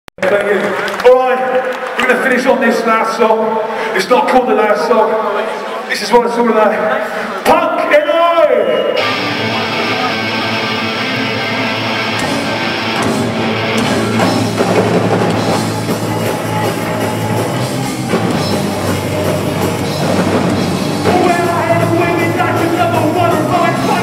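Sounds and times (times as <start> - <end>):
distorted electric guitars: 8.8 - 24.0
bass guitar: 9.0 - 24.0
drum kit: 9.0 - 24.0.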